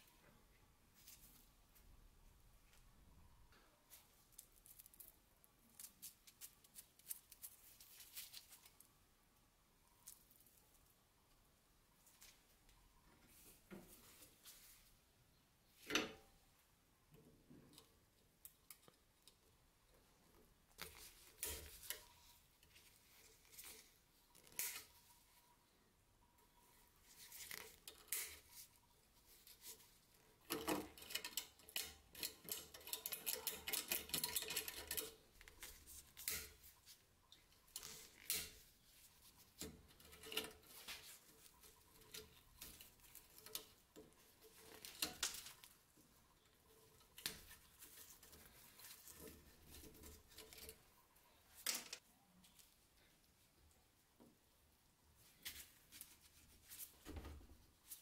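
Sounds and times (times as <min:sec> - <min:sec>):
wire pulled and breaking: 0:30.4 - 0:36.9, 0:37.7 - 0:38.7, 0:39.5 - 0:45.9.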